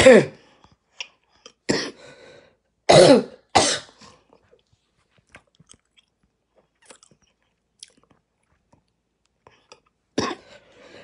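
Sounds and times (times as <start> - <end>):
woman coughing hoarsely: 2.9 - 4.0.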